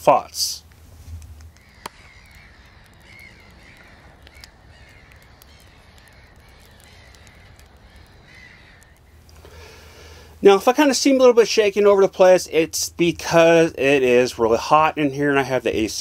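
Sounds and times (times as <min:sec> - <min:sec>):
light crackles: 0:00.0 - 0:16.0
crow-like caws: 0:01.5 - 0:10.4.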